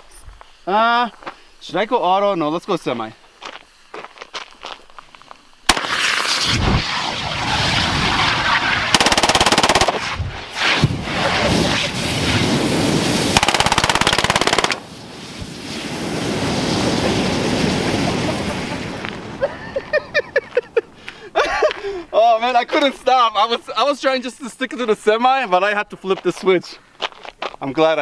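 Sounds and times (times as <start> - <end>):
burning gas jet rushing: 5.7 - 19.8
submachine gun full-auto bursts: 8.9 - 10.0, 13.4 - 14.8.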